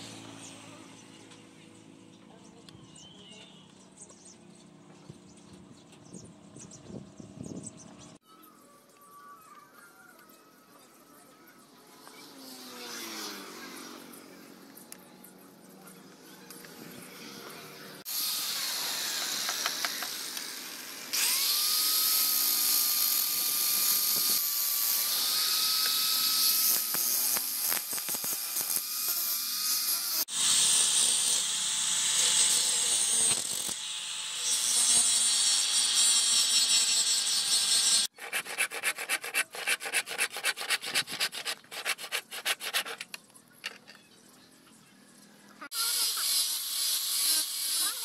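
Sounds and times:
angle grinder sanding wood: 34.6 - 43.2
quick rhythmic rubbing strokes: 38.1 - 43.2.

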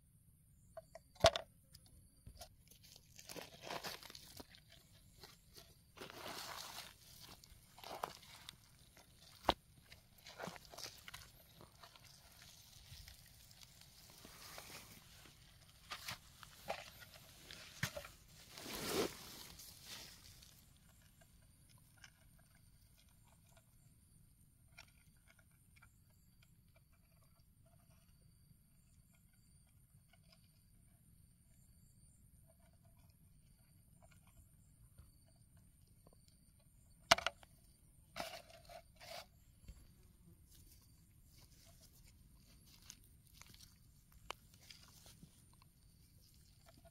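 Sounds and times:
soil and dry plant litter crackling: 2.5 - 21.2, 39.1 - 46.9
short scraping rustles: 16.9 - 20.4.

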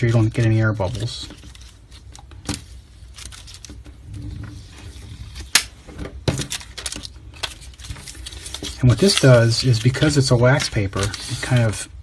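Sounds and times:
paper and plastic rustling: 0.0 - 12.0.

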